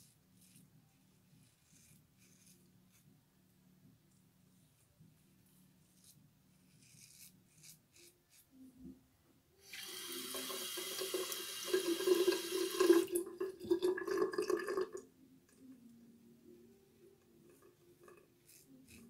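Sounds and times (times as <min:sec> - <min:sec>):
razor scraping stubble: 0:00.0 - 0:03.0, 0:05.8 - 0:08.5, 0:18.4 - 0:19.0.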